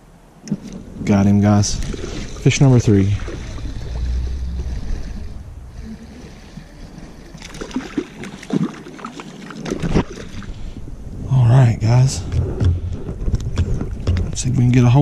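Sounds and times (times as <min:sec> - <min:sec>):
stream water running: 0:00.0 - 0:11.0
wind rumbling on microphone: 0:00.0 - 0:15.0
splashing and clicking: 0:07.3 - 0:10.5.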